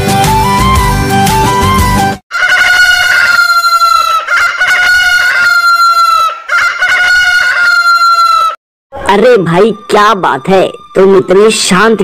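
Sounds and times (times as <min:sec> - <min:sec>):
rooster crowing: 0:02.3 - 0:08.6.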